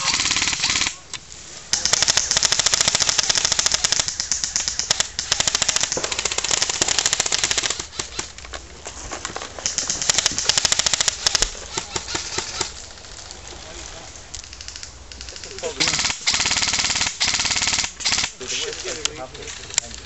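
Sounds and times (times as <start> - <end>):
airsoft rifles firing full auto: 0.0 - 1.0, 1.7 - 8.3, 9.6 - 12.8, 14.4 - 18.9.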